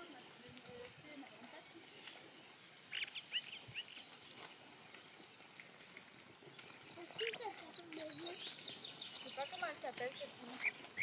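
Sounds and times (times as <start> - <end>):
faint background hiss: 0.0 - 11.0
high sharp bird chirps: 2.9 - 4.0.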